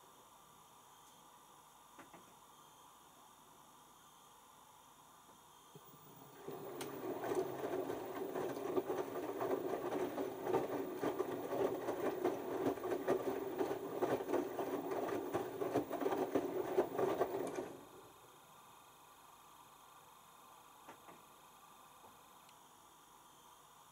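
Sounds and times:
washing machine drum churning: 6.1 - 18.0.

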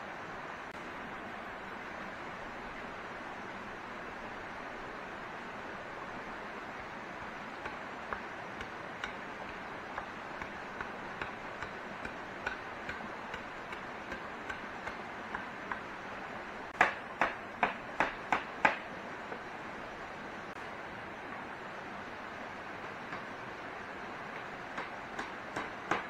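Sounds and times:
steady hiss: 0.0 - 26.0
sharp knocks: 16.8 - 18.8.

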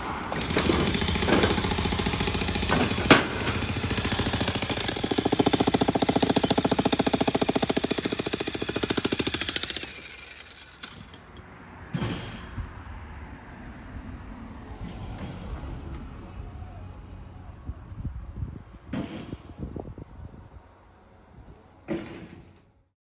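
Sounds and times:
breaker hammer pounding concrete: 0.3 - 11.2.

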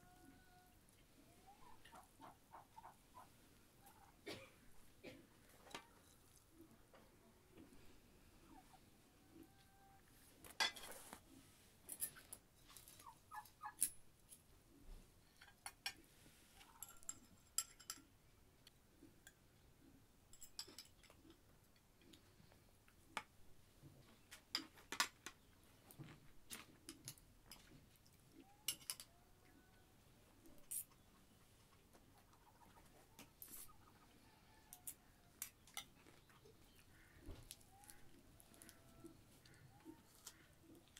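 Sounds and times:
cutlery clinking on plates: 10.5 - 11.0, 16.8 - 18.1, 20.3 - 21.2.

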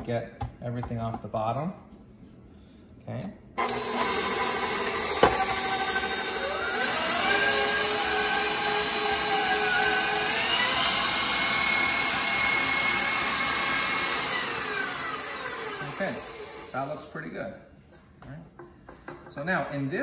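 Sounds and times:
stand mixer motor whine: 3.6 - 17.0.

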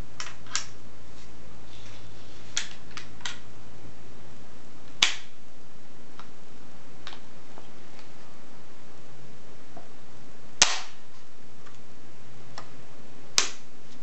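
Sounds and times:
pistol lock sharp snap: 10.6 - 10.9.

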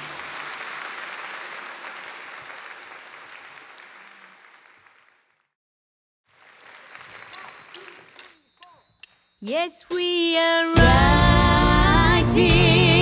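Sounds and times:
audience applauding: 0.0 - 5.5, 6.3 - 8.4.

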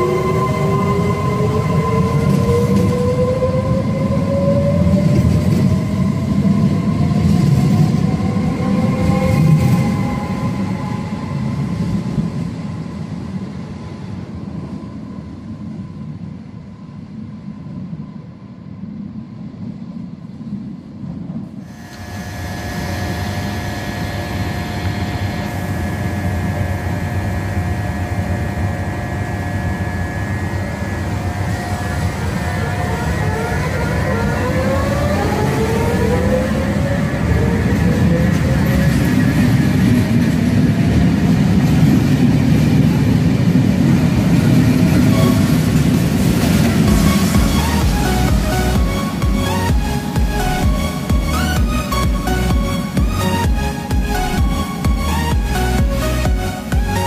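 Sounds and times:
train wheels rumbling: 20.9 - 57.0
electric train motors whining: 21.7 - 40.4, 44.4 - 57.0.

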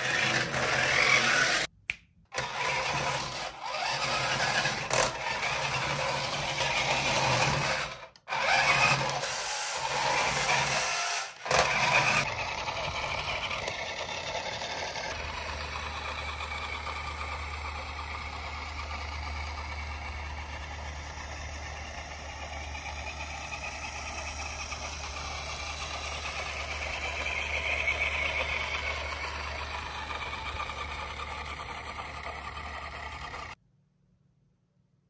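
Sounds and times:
vehicle engine noise: 11.6 - 33.6
low hum: 12.2 - 34.9.

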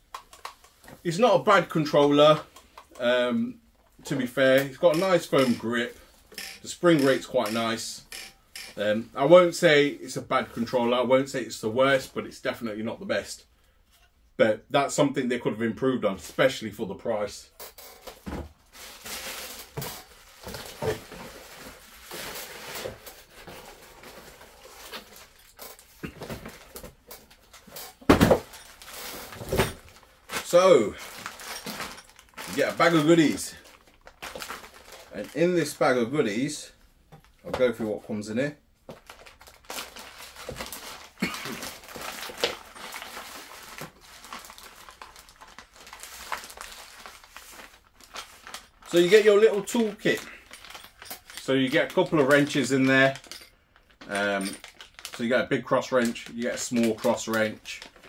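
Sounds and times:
packaging rustling: 4.7 - 8.8, 18.0 - 36.0, 38.9 - 58.0
plastic bag crinkling: 4.7 - 8.8, 18.6 - 36.0, 38.9 - 58.0.

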